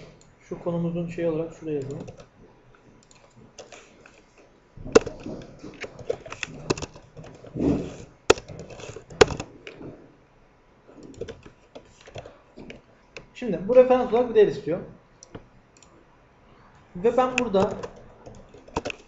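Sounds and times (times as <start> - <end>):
keyboard key clicks: 8.3 - 9.5, 17.3 - 19.0.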